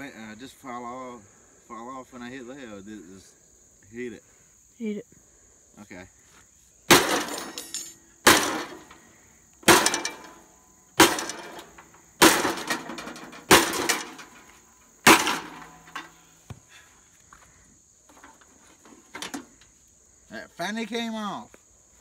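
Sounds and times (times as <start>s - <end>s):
sledgehammer striking metal: 6.9s - 8.9s, 9.6s - 14.4s, 15.0s - 16.1s.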